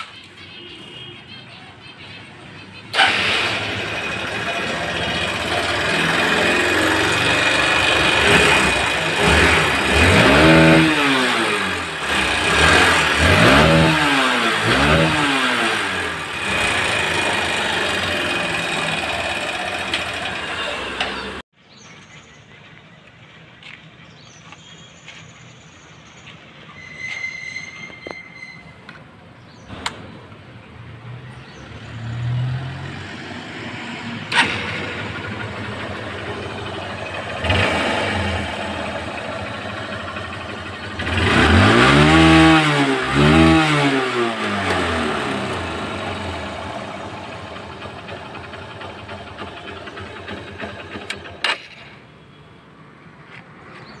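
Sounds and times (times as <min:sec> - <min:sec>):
motorcycle engine starting and idling: 0:02.8 - 0:21.4, 0:33.1 - 0:52.3
motorcycle engine revving: 0:02.9 - 0:21.4, 0:30.9 - 0:52.0.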